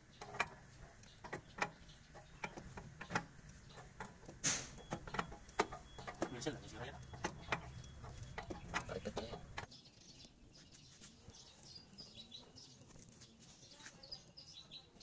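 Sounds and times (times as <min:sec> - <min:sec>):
faint bird chirps: 0:04.7 - 0:15.0.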